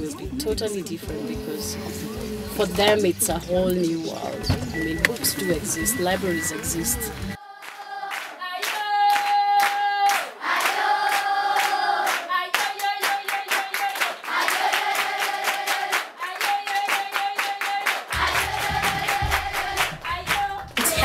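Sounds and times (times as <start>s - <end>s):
group singing in unison: 4.1s - 21.0s
rhythmic hand clapping: 4.6s - 21.0s.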